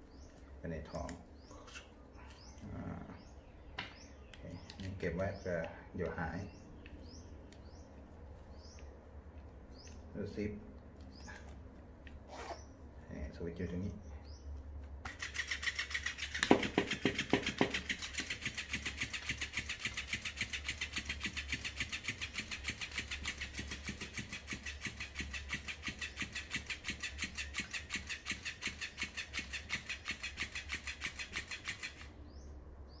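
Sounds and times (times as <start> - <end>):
cat toy motor clicking: 15.0 - 32.2.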